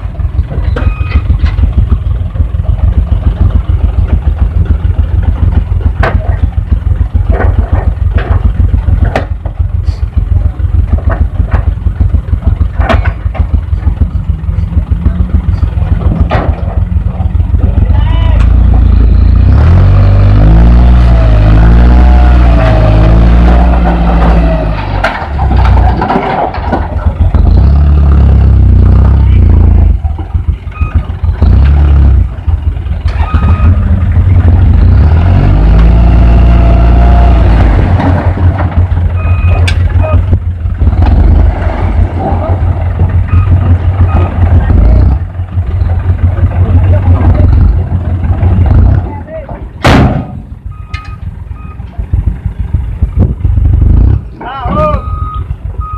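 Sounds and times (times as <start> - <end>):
diesel truck engine throbbing: 0.0 - 55.9
sharp engine knocks: 3.2 - 9.7, 10.5 - 18.7, 37.5 - 55.0.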